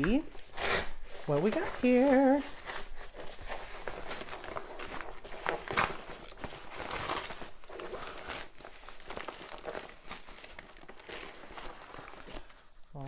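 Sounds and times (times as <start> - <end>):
paper mailer tearing and crinkling: 0.0 - 12.6
tissue paper rustling: 0.0 - 13.0.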